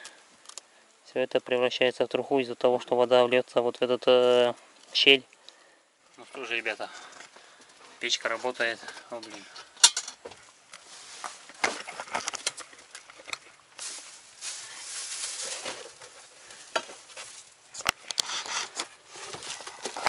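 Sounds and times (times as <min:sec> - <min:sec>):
bags rustling: 0:10.8 - 0:12.6, 0:13.7 - 0:17.8, 0:18.6 - 0:20.0.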